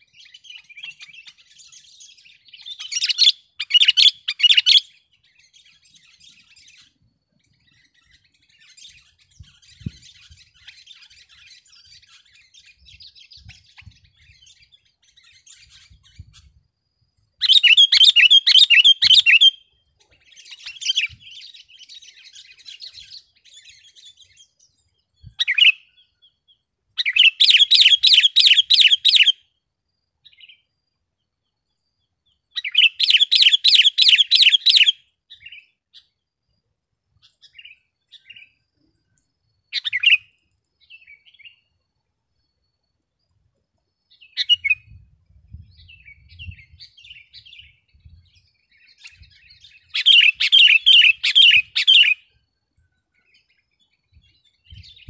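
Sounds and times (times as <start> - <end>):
bird whistled song phrases: 0.0 - 16.6, 17.4 - 26.4, 27.0 - 29.5, 32.5 - 36.1, 39.7 - 41.7, 44.1 - 52.3, 53.2 - 55.0
soft bird twittering: 0.0 - 29.6, 31.4 - 41.8, 42.4 - 55.0
short bird calls: 17.4 - 24.5, 27.0 - 29.5, 32.5 - 36.2, 44.1 - 45.0, 45.8 - 52.4.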